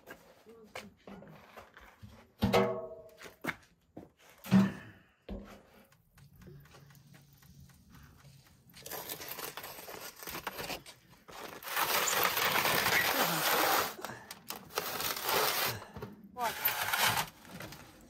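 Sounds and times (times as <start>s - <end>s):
crunching crinkling handling noise: 8.0s - 15.9s.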